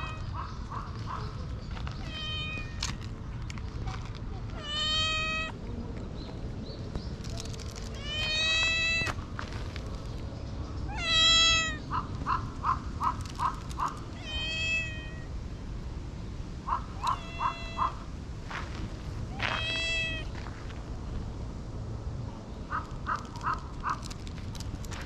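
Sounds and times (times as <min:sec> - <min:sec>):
cat chirping: 0:02.0 - 0:02.8, 0:04.6 - 0:05.6, 0:07.9 - 0:09.1, 0:10.9 - 0:15.3, 0:16.8 - 0:18.0
cat meowing: 0:02.0 - 0:02.8, 0:04.6 - 0:05.6, 0:07.9 - 0:09.1, 0:10.9 - 0:12.0, 0:13.8 - 0:15.3, 0:17.0 - 0:18.0, 0:19.4 - 0:20.3.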